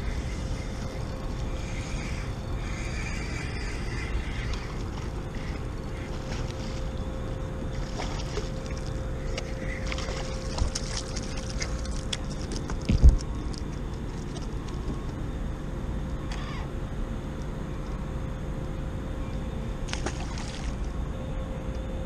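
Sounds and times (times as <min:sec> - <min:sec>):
water sloshing: 0:03.9 - 0:13.0.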